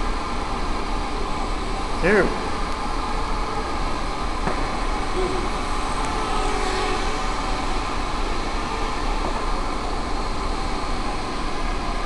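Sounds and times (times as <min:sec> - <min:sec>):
quadcopter motors buzzing: 0:04.9 - 0:10.0.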